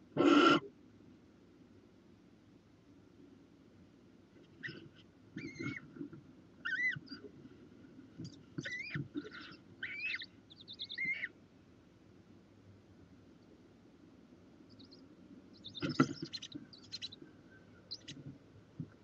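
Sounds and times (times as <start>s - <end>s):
owls squeaky chirps: 5.4s - 5.8s, 6.6s - 7.3s, 8.6s - 11.4s, 14.7s - 18.2s.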